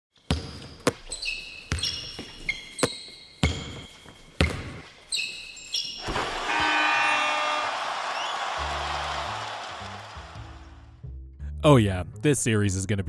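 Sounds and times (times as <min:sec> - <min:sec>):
basketball bouncing on hard floor: 0:00.3 - 0:04.9
short high squeaks: 0:01.1 - 0:04.1.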